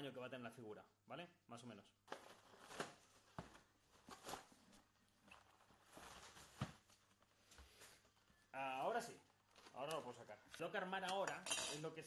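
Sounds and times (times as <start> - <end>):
package rustling: 2.1 - 7.4, 9.3 - 10.4.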